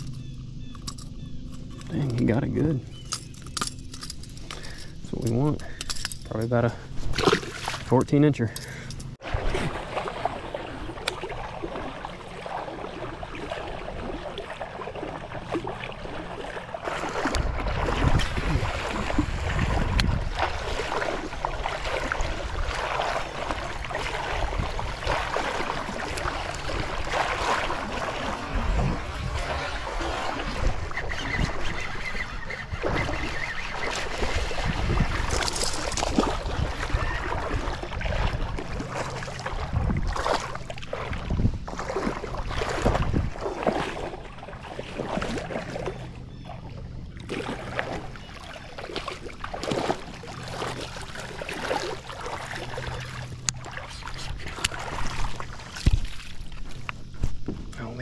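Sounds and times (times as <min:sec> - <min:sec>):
water splashing and lapping: 0:00.0 - 0:58.0
wind buffeting microphone: 0:17.1 - 0:44.2.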